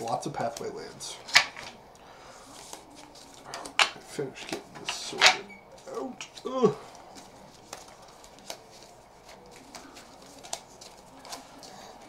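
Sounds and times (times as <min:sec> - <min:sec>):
cards clicking and tapping down: 0:00.0 - 0:01.8, 0:02.6 - 0:05.4, 0:06.2 - 0:11.8
cards rustling and sliding: 0:00.4 - 0:01.8, 0:02.4 - 0:12.0.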